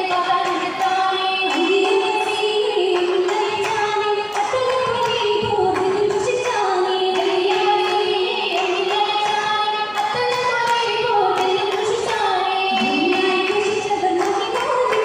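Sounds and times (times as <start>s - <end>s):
girls singing into microphones: 0.0s - 15.0s
hand claps: 12.8s - 15.0s.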